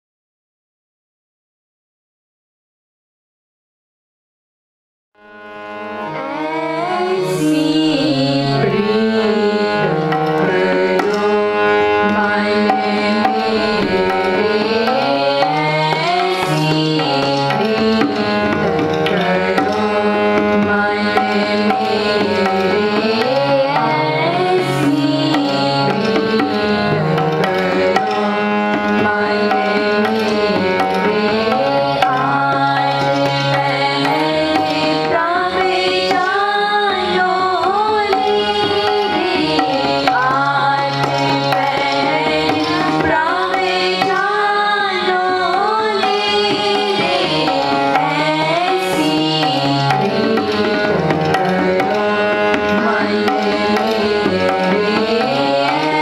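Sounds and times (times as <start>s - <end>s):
harmonium chords and melody: 5.2s - 56.0s
tabla strokes: 9.8s - 56.0s
girls singing: 12.2s - 18.4s, 19.1s - 26.8s, 27.8s - 56.0s.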